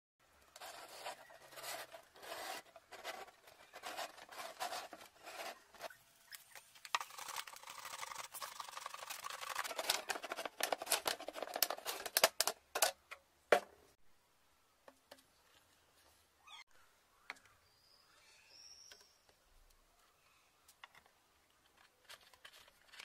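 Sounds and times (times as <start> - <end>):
marker rubbing on plastic: 0.6 - 12.0.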